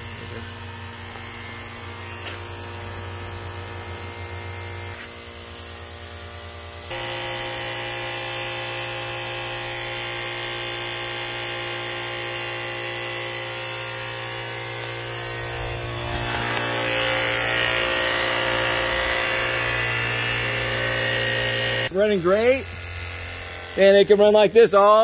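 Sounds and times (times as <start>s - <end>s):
misting pump motor humming: 6.9s - 24.1s.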